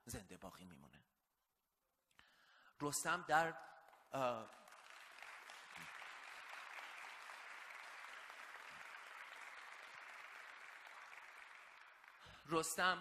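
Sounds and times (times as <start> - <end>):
audience applauding: 4.2 - 13.0.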